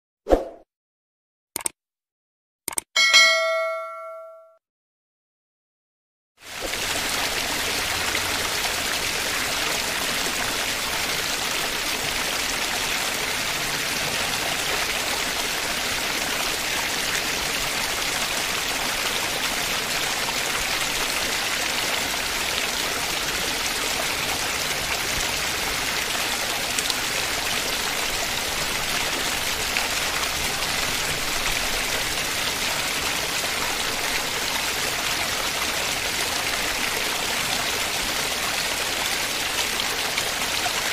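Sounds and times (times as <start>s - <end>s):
running water rushing: 6.4s - 40.9s.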